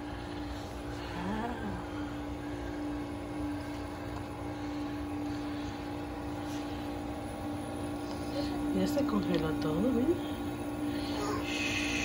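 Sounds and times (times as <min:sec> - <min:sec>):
ice maker humming: 0:00.0 - 0:12.0.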